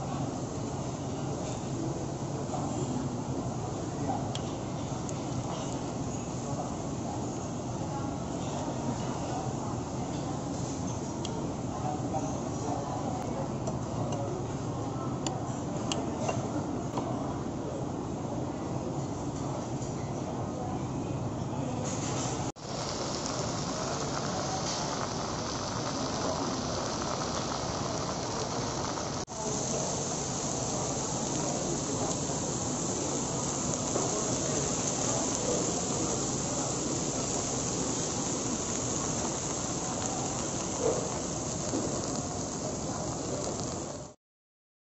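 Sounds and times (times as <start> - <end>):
food sizzling on hot plates: 0.0 - 13.4, 21.8 - 44.2.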